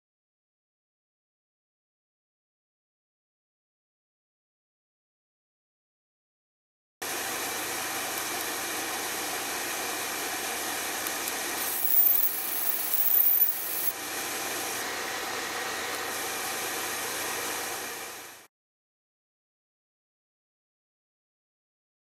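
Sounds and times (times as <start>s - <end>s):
high-pitched whine: 11.6s - 13.9s
laser engraver mechanical hiss: 11.6s - 13.9s.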